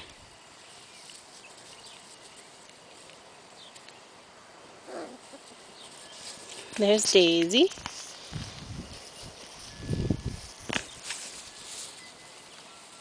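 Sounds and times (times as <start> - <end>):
outdoor background hiss: 0.0 - 13.0
puppy rustling in grass: 0.0 - 13.0
soft puppy vocal sound: 4.8 - 6.6.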